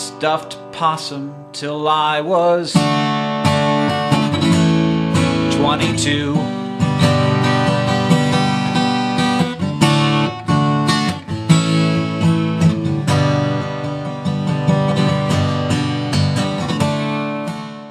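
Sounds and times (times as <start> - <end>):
acoustic guitar strumming chords: 0.0 - 17.9.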